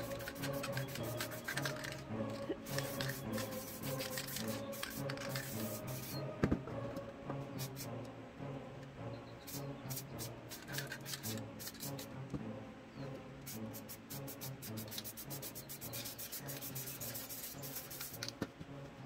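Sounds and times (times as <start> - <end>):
spray paint can hissing: 0.0 - 6.3, 7.6 - 8.0, 9.4 - 12.2, 13.4 - 18.4
horror music with low drone: 0.0 - 14.0, 17.6 - 19.0.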